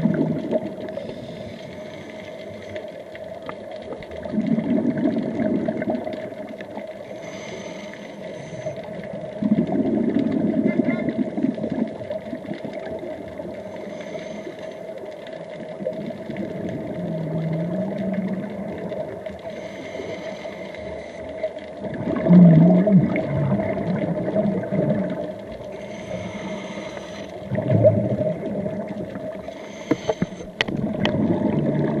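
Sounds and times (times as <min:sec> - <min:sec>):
bubbling rumbling exhalation: 0:00.0 - 0:01.4, 0:04.2 - 0:06.5, 0:08.8 - 0:13.5, 0:15.8 - 0:20.0, 0:21.8 - 0:32.0
scuba regulator hissing inhalations: 0:07.0 - 0:09.2, 0:13.6 - 0:14.9, 0:19.4 - 0:21.6, 0:25.6 - 0:27.5, 0:29.4 - 0:30.6.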